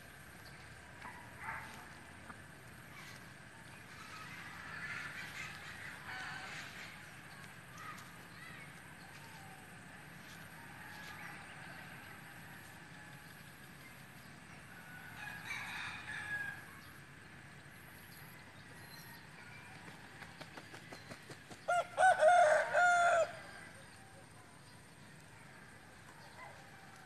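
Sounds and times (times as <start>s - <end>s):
rooster crowing: 14.8s - 16.8s, 21.7s - 24.0s.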